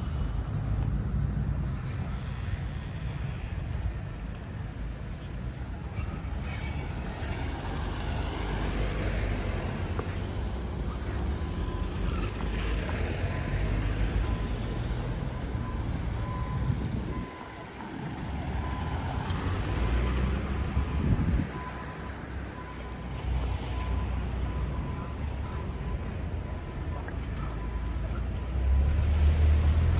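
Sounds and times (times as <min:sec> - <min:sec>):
traffic rumble: 0:00.0 - 0:29.9
wind buffeting microphone: 0:16.0 - 0:18.6, 0:20.5 - 0:22.7.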